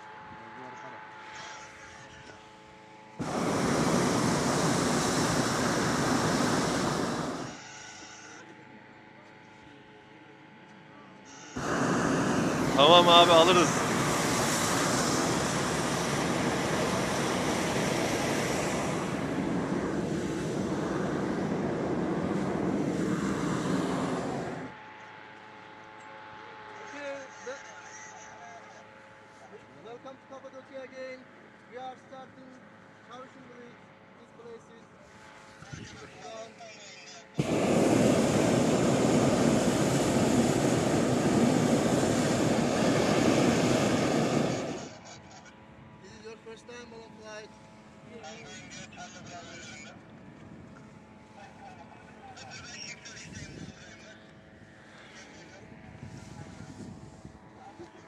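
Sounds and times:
propane burner roaring hiss: 1.3s - 8.4s, 11.2s - 24.8s, 35.1s - 45.4s, 47.7s - 58.0s.

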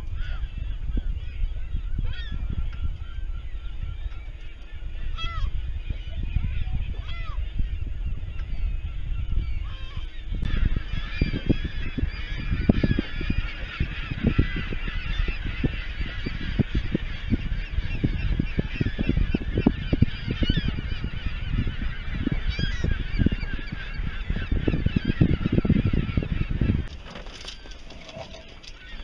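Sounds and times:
waterbirds calling: 0.0s - 29.0s
wind buffeting microphone: 0.0s - 29.0s.

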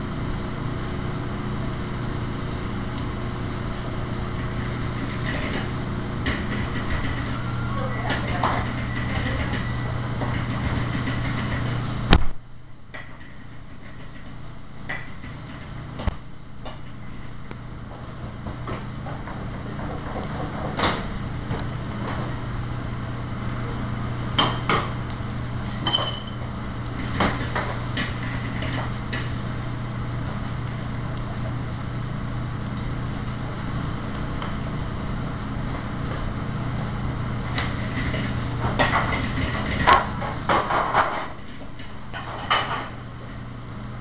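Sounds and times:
food sizzling on griddle: 0.0s - 12.2s, 12.9s - 44.0s
kitchen exhaust hood hum: 0.0s - 44.0s
pans and utensils clinking: 25.7s - 26.5s.

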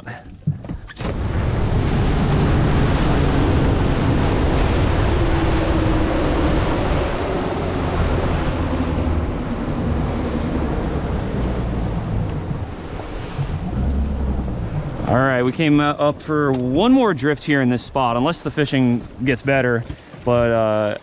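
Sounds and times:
rush of wind and water: 0.0s - 21.0s
motorboat engine drone: 0.9s - 17.5s.

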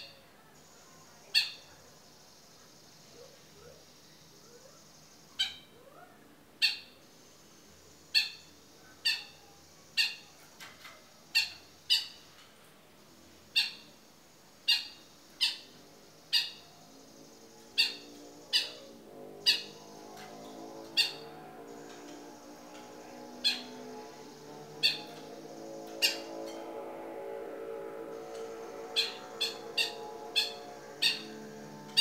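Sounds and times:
shrike calling sharp notes: 17.8s - 21.8s, 24.8s - 32.0s
soft low sound: 18.8s - 32.0s.

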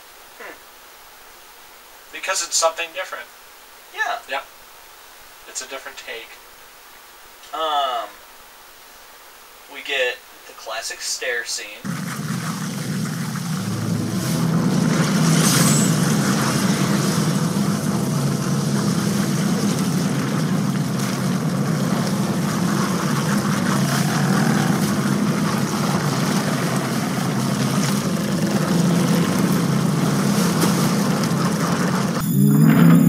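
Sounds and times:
even hiss: 2.0s - 6.4s
low drone: 11.8s - 33.0s.

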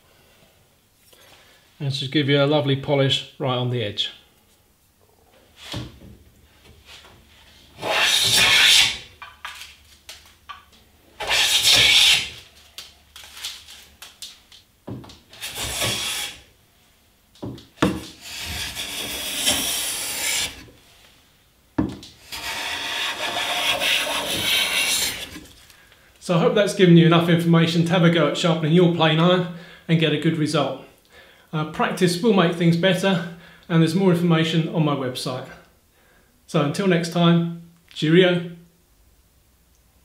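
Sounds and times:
hand plane cutting shavings: 7.8s - 9.0s, 11.2s - 12.4s, 15.3s - 16.4s, 17.8s - 20.7s, 22.2s - 25.5s.

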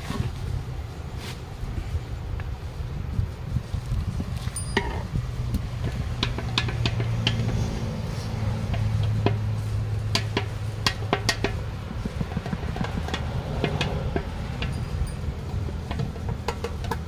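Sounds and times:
taps and clicks of hand tools: 4.7s - 9.4s, 10.1s - 17.0s.

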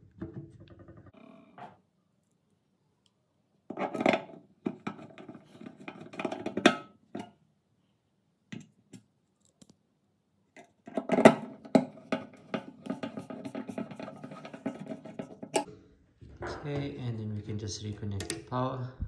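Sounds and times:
metal and plastic clicks and knocks: 18.1s - 18.5s.

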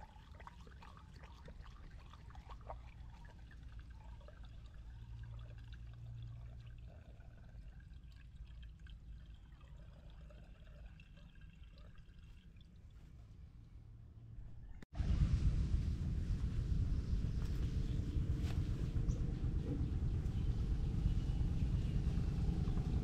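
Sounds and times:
small water splashes: 0.0s - 13.2s
water pouring and trickling: 0.0s - 13.5s
steady low hum: 13.6s - 23.0s.

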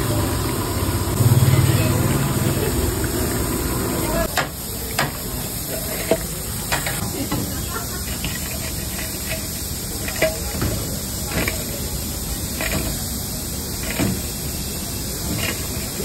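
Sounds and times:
oil deep-frying hiss: 0.0s - 16.0s
steel utensils clinking: 4.9s - 13.1s.

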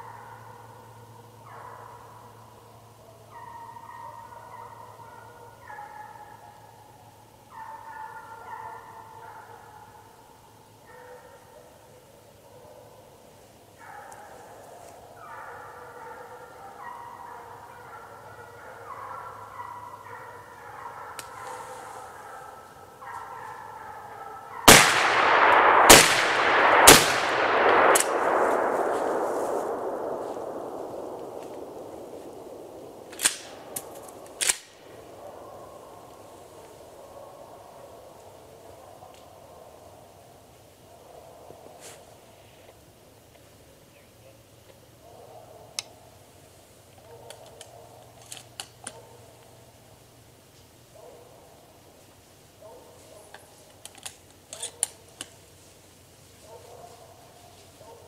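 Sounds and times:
hounds baying and howling: 0.0s - 13.2s, 13.8s - 24.7s, 27.5s - 40.2s, 40.9s - 41.8s, 47.0s - 48.2s, 56.4s - 58.0s
gunshots echoing: 24.6s - 34.9s.

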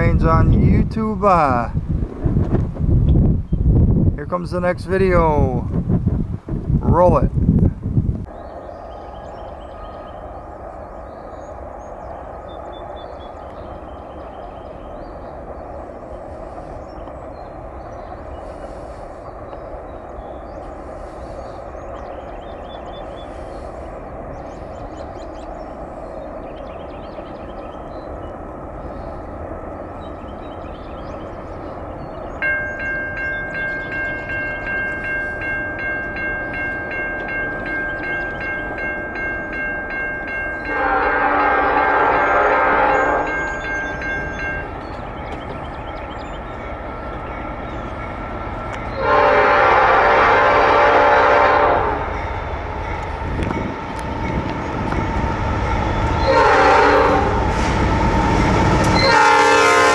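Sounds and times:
diesel locomotive rumble: 0.0s - 59.9s
locomotive air horn chord: 40.6s - 43.4s, 48.9s - 52.2s, 56.2s - 58.0s, 58.9s - 59.9s.

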